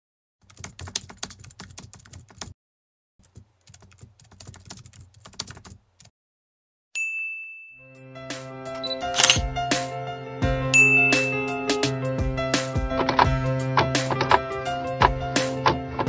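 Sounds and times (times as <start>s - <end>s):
bright ding: 7.0s - 8.0s, 10.8s - 11.6s.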